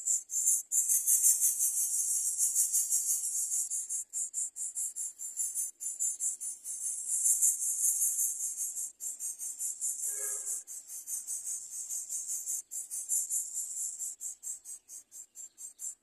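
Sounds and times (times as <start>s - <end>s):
insects chirping in pulses: 0.0s - 16.0s
bird call: 10.0s - 10.7s.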